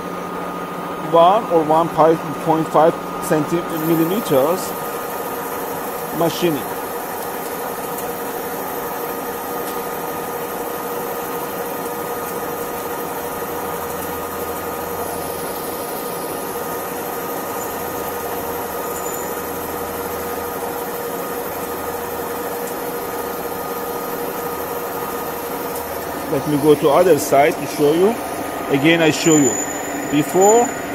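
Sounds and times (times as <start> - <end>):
lathe running: 0.0 - 30.9
steady whine: 0.9 - 6.9, 23.4 - 30.9.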